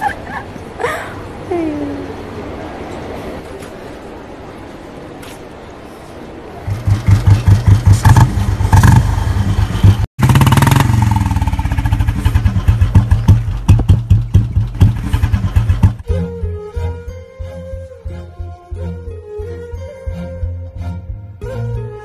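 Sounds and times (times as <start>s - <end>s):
motorcycle engine revving: 6.6s - 16.0s
music: 16.0s - 22.0s.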